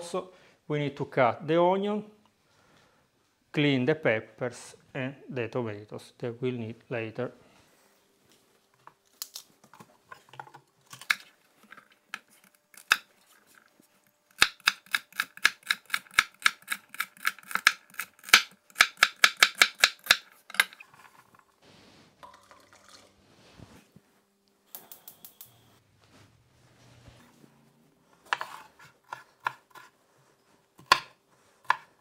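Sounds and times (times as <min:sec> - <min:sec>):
knife chopping on wooden board: 0:28.3 - 0:29.9, 0:30.8 - 0:32.0.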